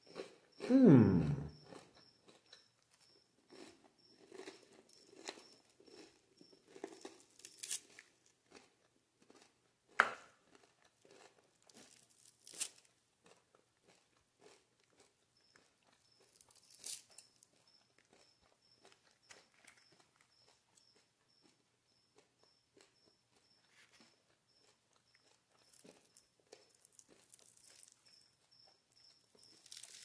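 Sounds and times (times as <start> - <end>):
fried crust crackling and crunching: 3.5 - 9.5, 10.4 - 18.2, 23.7 - 28.4, 29.1 - 30.0.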